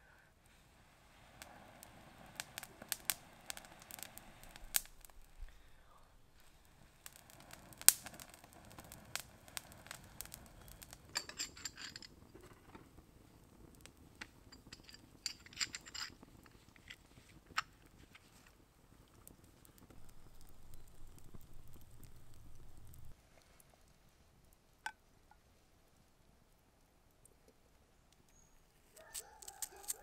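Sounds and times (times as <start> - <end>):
soft blows of breath: 0.0 - 7.9
burning grass crackling: 0.0 - 26.1, 28.3 - 30.0.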